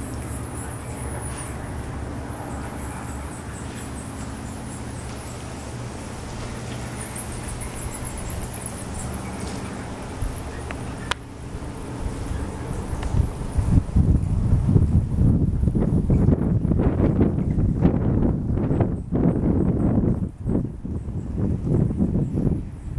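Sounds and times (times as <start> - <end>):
bats squeaking: 0.0 - 13.8
steady low hum: 0.0 - 22.9.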